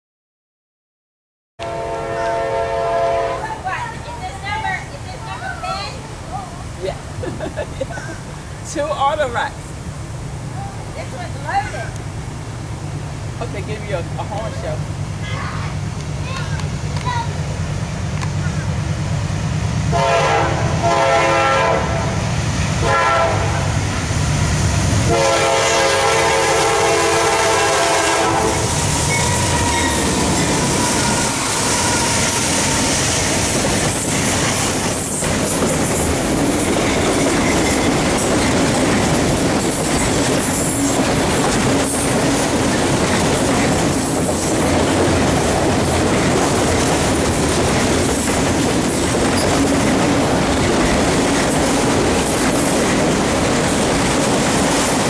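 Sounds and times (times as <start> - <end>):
locomotive air horn blasts: 1.6 - 3.6, 19.9 - 22.2, 22.8 - 23.7, 25.1 - 33.0
freight cars rolling past: 2.0 - 55.0
wheels clicking over rail joints: 33.3 - 55.0.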